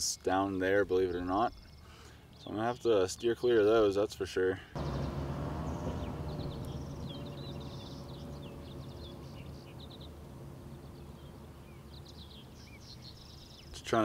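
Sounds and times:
small birds chirping: 0.2 - 3.8, 4.8 - 14.0
drone motors humming: 4.8 - 13.3.

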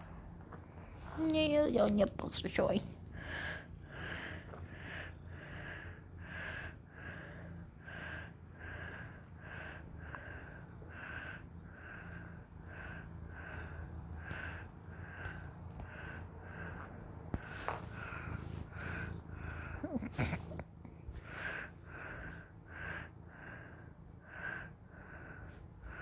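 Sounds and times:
heavy nasal breathing: 3.0 - 26.0
cat purring: 3.3 - 23.7.

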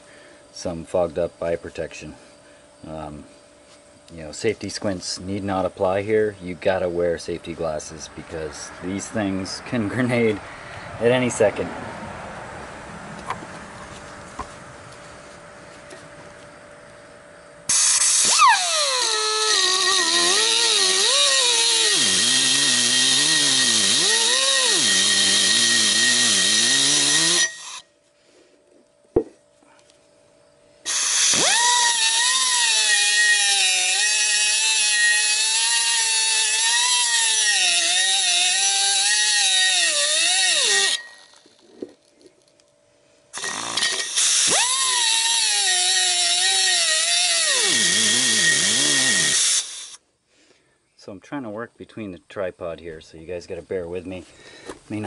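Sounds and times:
pneumatic cutoff tool cutting metal: 17.7 - 27.9, 30.8 - 41.6, 43.3 - 50.0.

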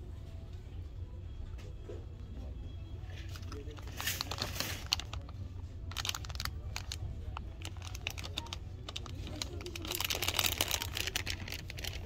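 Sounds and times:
plastic bags rustling and clicking: 3.2 - 12.0.

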